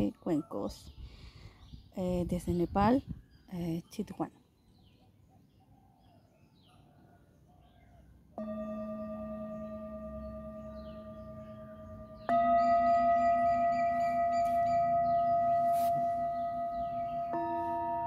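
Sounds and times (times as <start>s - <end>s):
singing bowl ringing: 8.4s - 18.0s.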